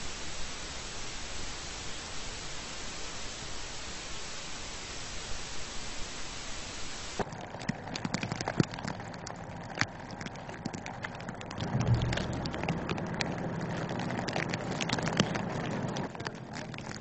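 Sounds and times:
steady hiss: 0.0s - 7.2s
sleet ticking on surfaces: 7.2s - 17.0s
vehicle engine and tyre rumble: 7.3s - 17.0s.

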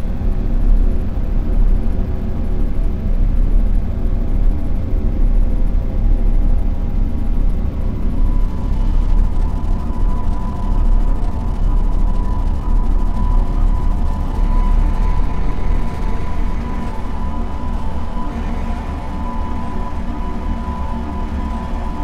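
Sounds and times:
steady humming tones: 0.0s - 22.0s
higher tone: 13.4s - 22.0s.

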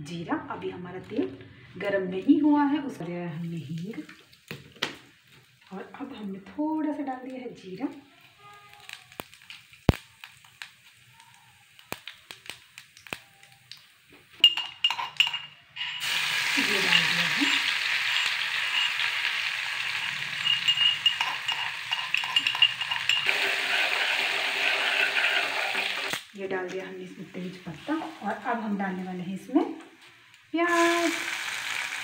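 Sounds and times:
oil sizzling: 3.3s - 32.0s
steel utensils clinking: 14.4s - 26.1s.

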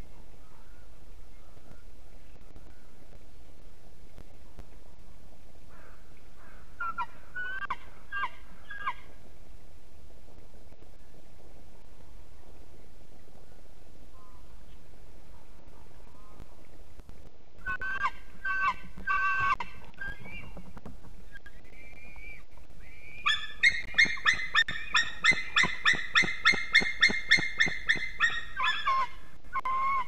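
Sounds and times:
eagle yelping calls: 17.6s - 20.6s, 21.9s - 30.0s.

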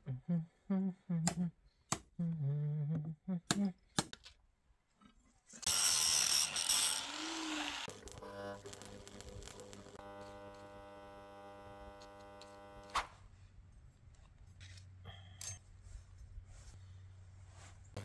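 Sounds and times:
arc welding crackling: 5.6s - 13.0s
welding machine electrical hum: 5.7s - 13.0s.

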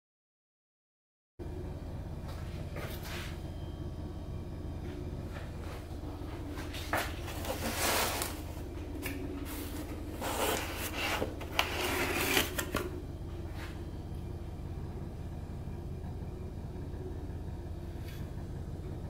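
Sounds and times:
steady low hum: 1.4s - 19.0s
cardboard scraping and rustling: 6.4s - 13.8s.

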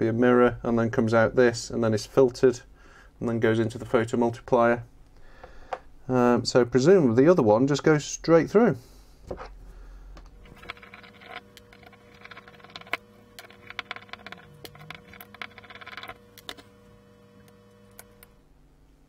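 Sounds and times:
screwdriver turning small screws: 10.4s - 16.7s, 17.4s - 18.4s.

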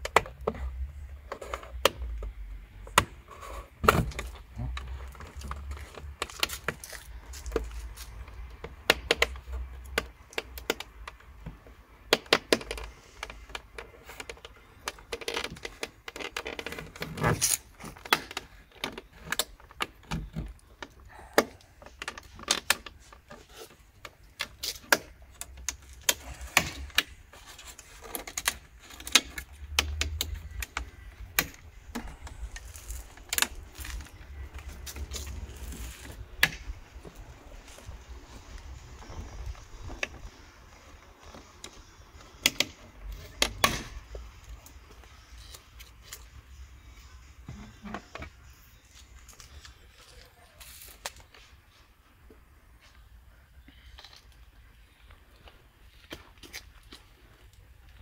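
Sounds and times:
plastic clicks and scrapes: 0.0s - 37.3s.

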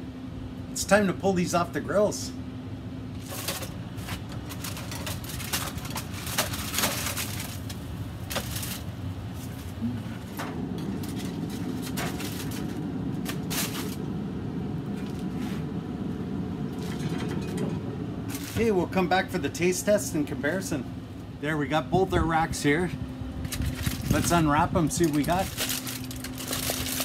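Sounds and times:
steady low hum: 0.0s - 27.0s
aluminium foil rustling: 3.1s - 14.2s, 16.7s - 19.1s, 23.4s - 27.0s.

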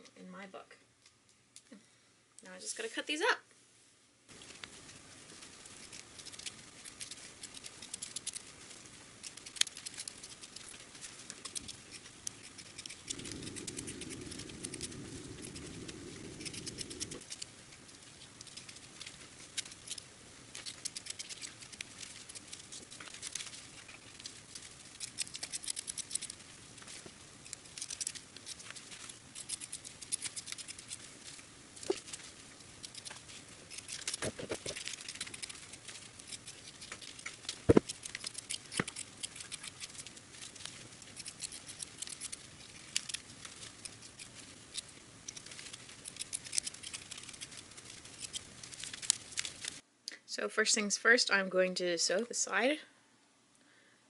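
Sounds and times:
low hum: 12.5s - 18.8s.

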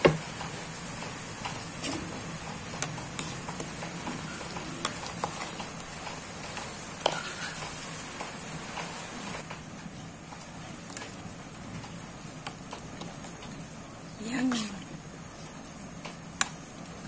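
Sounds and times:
stew bubbling in a pot: 0.0s - 14.5s
ladle stirring stew: 1.4s - 8.3s.

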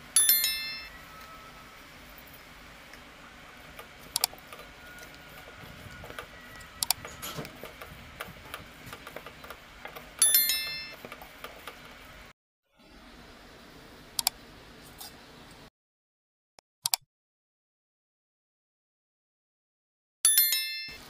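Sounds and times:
bright ringing chime: 0.1s - 1.7s, 10.2s - 11.0s
hand mixing chicken in steel bowl: 0.9s - 12.3s
sharp clicks: 3.8s - 11.8s, 14.2s - 14.4s.

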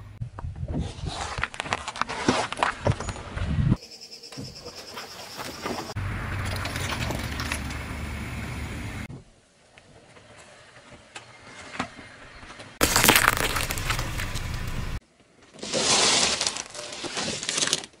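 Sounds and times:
tyre crushing objects: 12.8s - 15.0s.

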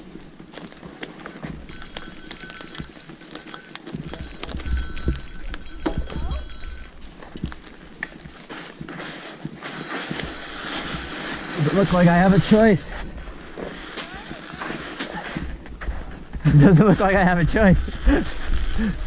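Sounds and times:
bike tyres crunching: 0.0s - 19.0s
bike frame rattling and knocking: 1.4s - 8.3s.

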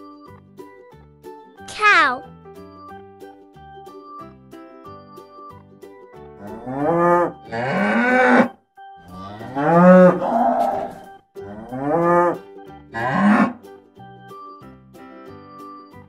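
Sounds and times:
cows mooing: 6.4s - 8.5s, 9.1s - 12.4s, 13.0s - 13.6s.

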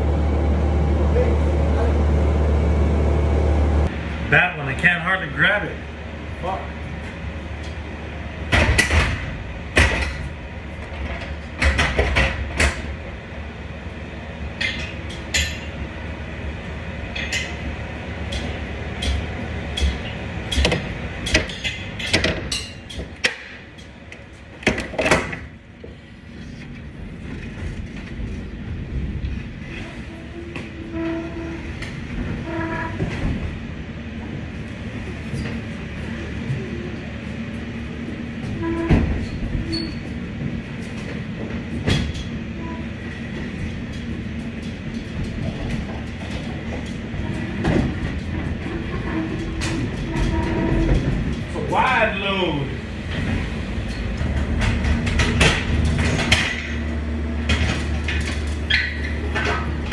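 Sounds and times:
pallet jack rolling rumble: 0.0s - 59.9s.

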